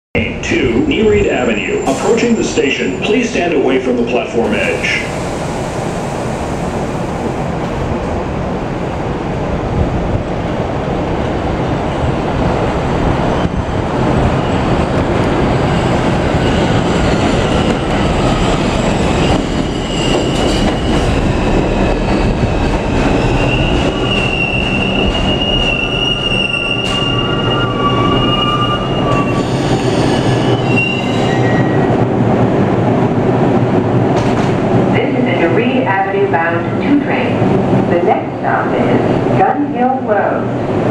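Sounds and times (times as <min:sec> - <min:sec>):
subway train wheels clattering: 0:00.3 - 0:40.9
train brakes squealing: 0:19.2 - 0:21.2, 0:21.8 - 0:31.8.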